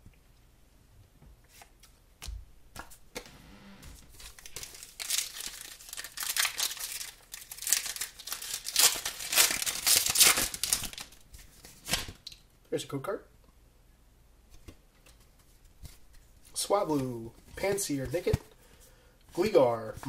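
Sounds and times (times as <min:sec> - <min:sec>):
foil wrapper crinkling and tearing: 0:04.1 - 0:11.2.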